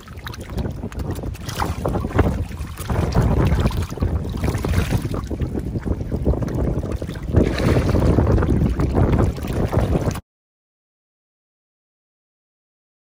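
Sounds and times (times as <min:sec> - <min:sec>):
fish thrashing in water: 0:00.0 - 0:10.2
wind buffeting microphone: 0:00.0 - 0:10.2.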